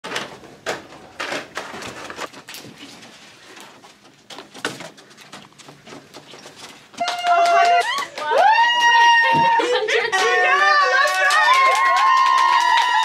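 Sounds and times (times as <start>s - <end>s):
balloons rustling and crinkling: 0.1s - 7.0s.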